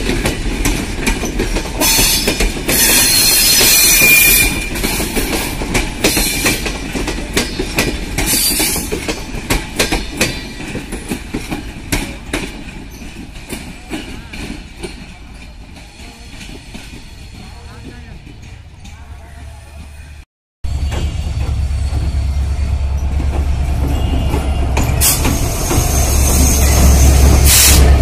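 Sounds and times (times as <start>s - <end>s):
train wheels clacking over rail joints: 0.0s - 19.5s, 20.8s - 28.0s
metallic wheel squeal: 1.8s - 4.6s, 20.7s - 27.9s.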